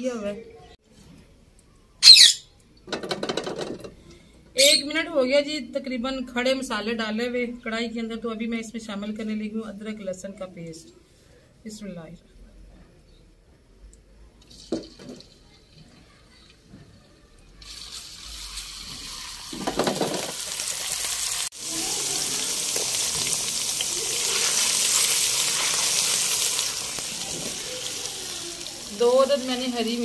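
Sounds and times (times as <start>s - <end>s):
paste sizzling in hot oil: 17.6s - 30.0s.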